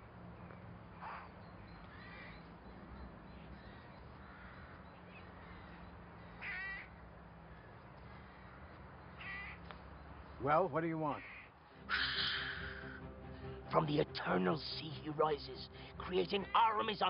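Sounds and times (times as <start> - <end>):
crows cawing: 0.4 - 10.2, 11.1 - 13.5.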